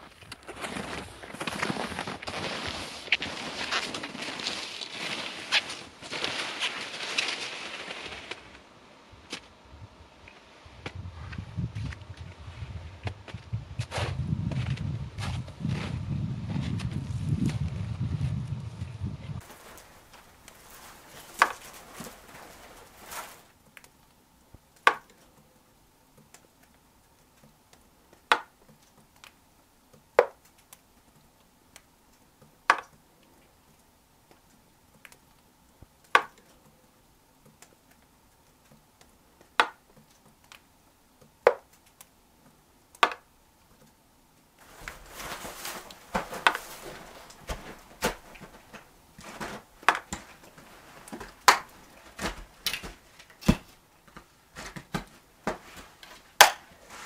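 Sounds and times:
footsteps crunching in snow: 0.0s - 8.6s, 10.4s - 23.6s, 44.6s - 57.0s.

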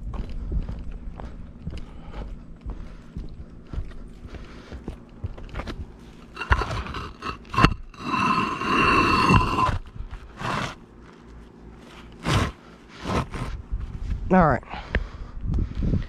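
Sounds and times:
bricks scraping on roofing: 6.2s - 10.8s, 12.2s - 13.6s
bricks knocking: 6.3s - 9.8s.

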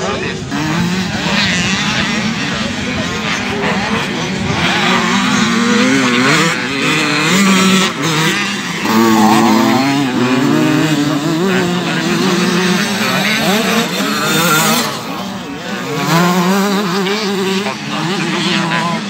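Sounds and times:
motocross engines revving: 0.0s - 19.0s.

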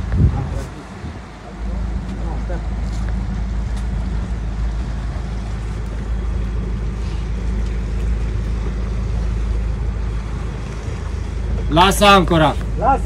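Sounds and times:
boat engine running: 0.0s - 13.0s
wind and water noise: 0.0s - 13.0s.

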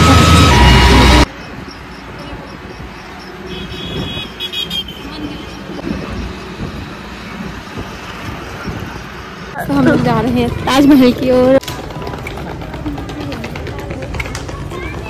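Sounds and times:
vehicle horn: 0.0s - 1.3s, 3.4s - 5.7s
engine and road noise: 0.0s - 15.0s.

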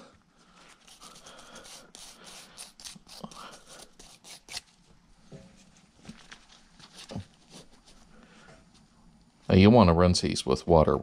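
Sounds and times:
gloved hands rubbing metal: 0.7s - 4.7s.

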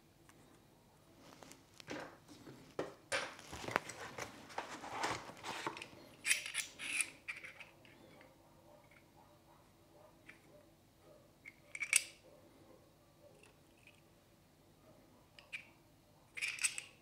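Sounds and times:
hands handling parts in box: 3.1s - 7.7s.

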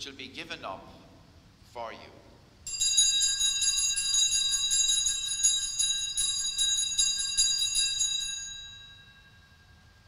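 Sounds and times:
altar bells ringing: 2.7s - 10.0s.

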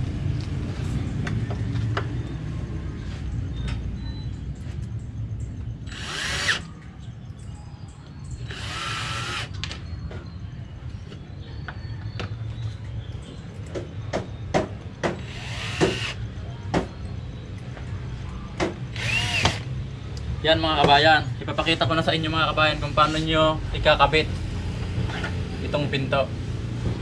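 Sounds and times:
drill driving screws: 5.9s - 6.6s, 8.5s - 9.5s, 15.2s - 16.2s, 18.9s - 19.7s.

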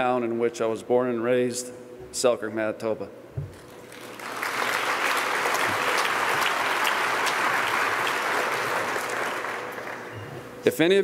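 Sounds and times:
audience applauding: 3.8s - 10.4s.

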